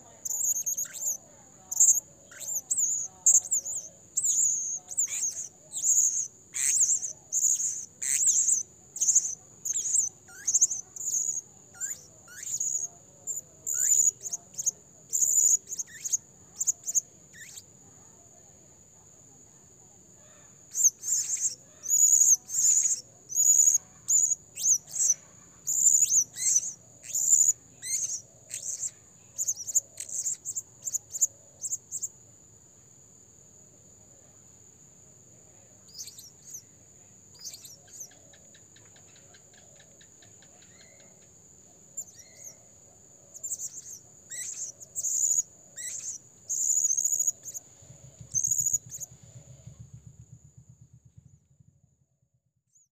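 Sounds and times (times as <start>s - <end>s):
parrot shrill calls: 1.8s - 12.8s, 43.4s - 47.3s.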